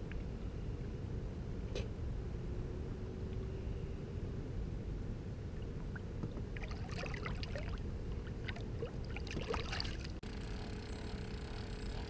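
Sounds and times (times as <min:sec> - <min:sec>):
steady low rumble: 0:00.0 - 0:12.0
water splashing and dripping: 0:05.9 - 0:10.2.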